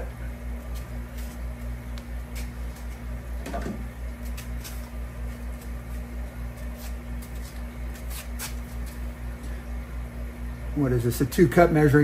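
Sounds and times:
pulsing electrical hum: 0:00.0 - 0:12.0.

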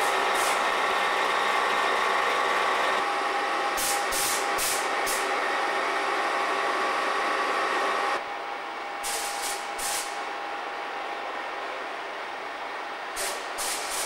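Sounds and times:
air hissing from train: 0:00.0 - 0:00.7, 0:03.7 - 0:05.3, 0:09.0 - 0:10.3, 0:13.1 - 0:14.0
train diesel engines idling: 0:00.0 - 0:14.0.

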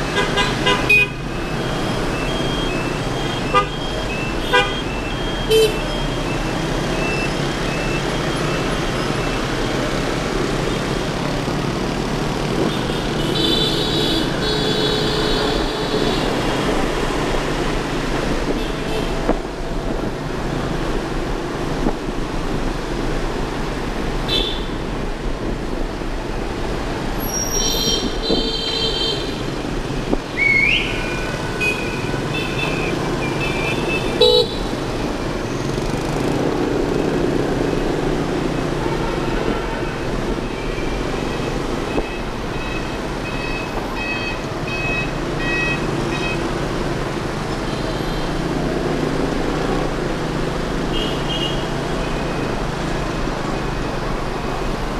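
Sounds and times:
engines and road noise: 0:00.0 - 0:54.9
vehicle horns tooting: 0:00.1 - 0:01.3, 0:03.2 - 0:06.1, 0:24.3 - 0:24.8, 0:27.2 - 0:29.5, 0:30.8 - 0:34.8.

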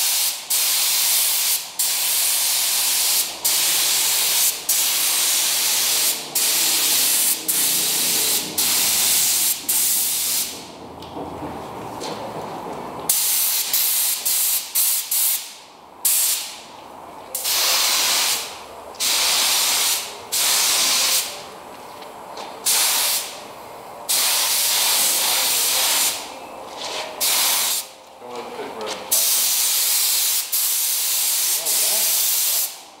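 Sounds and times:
spray gun hissing: 0:00.0 - 0:10.5, 0:17.4 - 0:21.4, 0:22.7 - 0:23.4, 0:24.1 - 0:26.2, 0:27.2 - 0:27.9, 0:29.1 - 0:32.8.

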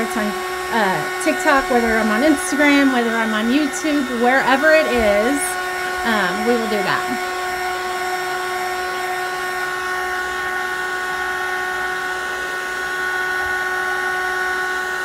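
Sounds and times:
electric blower motor whine: 0:00.0 - 0:15.0.

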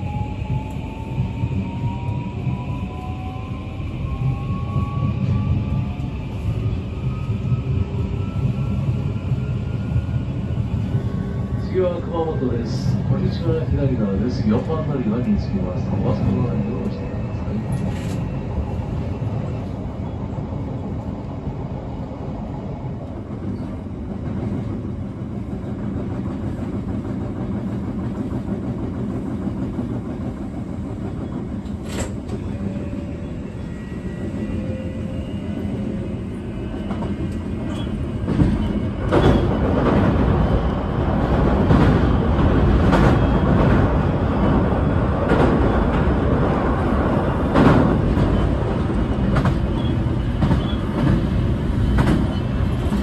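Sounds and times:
train wheel-on-rail rumble: 0:00.0 - 0:53.0
train clattering over bridge: 0:35.8 - 0:53.0.

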